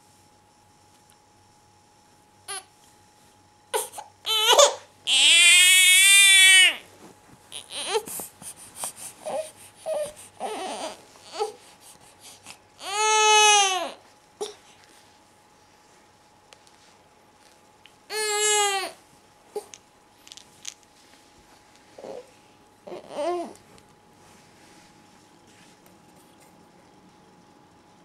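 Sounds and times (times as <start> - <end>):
baby crying: 3.8 - 6.8, 7.5 - 8.0, 9.3 - 11.6, 12.8 - 14.6, 18.1 - 19.0, 22.9 - 23.6.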